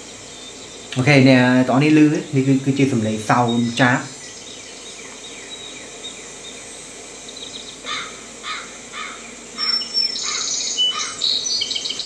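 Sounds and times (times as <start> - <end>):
bird calling: 0.0 - 12.0
faint outdoor background: 0.0 - 12.0
high-pitched bird chirping: 9.1 - 12.0.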